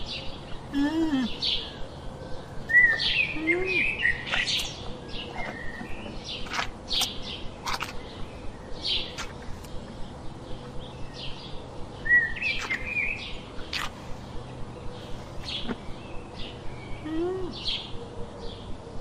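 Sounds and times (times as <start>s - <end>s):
low rising and falling bird call: 0.0s - 18.6s
birds chirping and whistling: 0.0s - 18.8s.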